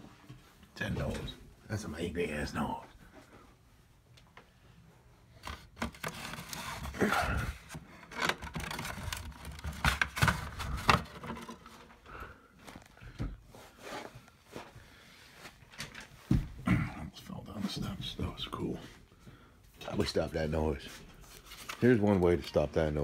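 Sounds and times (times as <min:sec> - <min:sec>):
plastic scraping and clicking: 0:05.4 - 0:07.0, 0:07.7 - 0:11.9.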